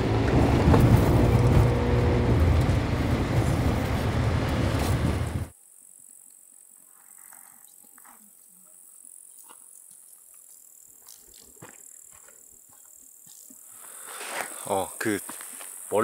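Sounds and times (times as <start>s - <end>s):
high-pitched insect chirring: 5.5s - 13.7s.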